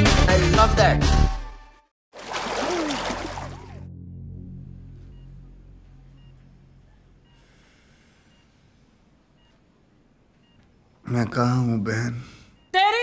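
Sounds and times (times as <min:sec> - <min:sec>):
low drone: 0:03.2 - 0:08.2
patient monitor beeps: 0:06.0 - 0:13.0.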